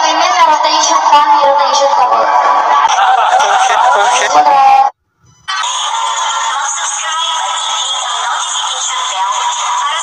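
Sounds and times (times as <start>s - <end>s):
music with processed singing voice: 5.5s - 10.0s.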